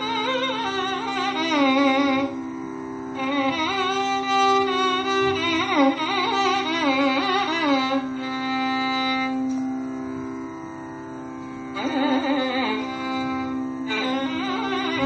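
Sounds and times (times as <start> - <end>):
steady drone: 0.0 - 15.0
ornamented classical melody: 3.1 - 15.0.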